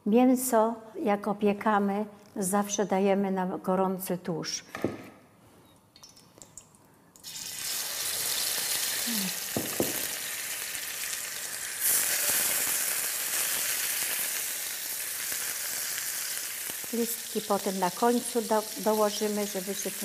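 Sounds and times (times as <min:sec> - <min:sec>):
ribs sizzling in frying pan: 0:07.2 - 0:20.0.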